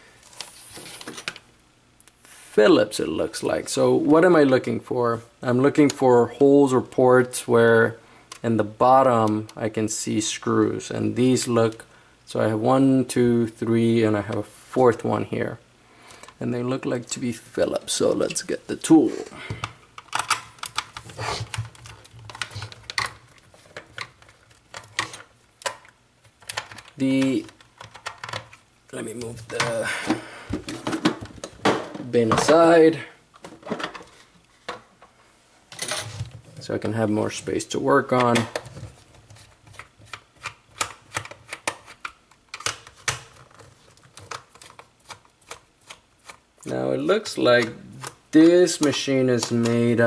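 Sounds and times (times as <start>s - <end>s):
plastic and tools clicking: 19.5s - 28.6s, 38.2s - 46.7s.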